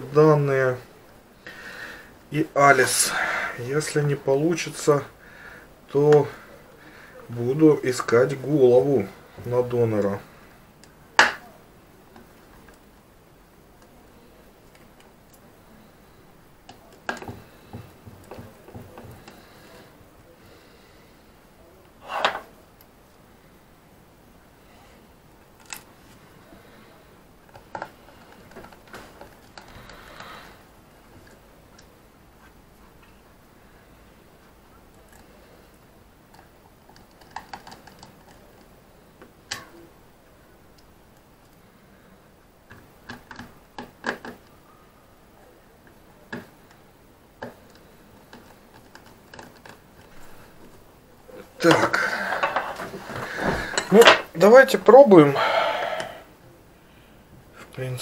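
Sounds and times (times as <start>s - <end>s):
small objects clicking and tapping: 16.7s - 19.6s, 42.7s - 44.5s.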